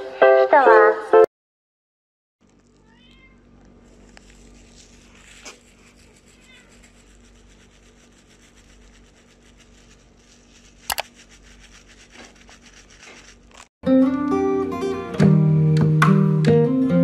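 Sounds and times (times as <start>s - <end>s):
plucked acoustic guitar music: 13.9s - 17.0s.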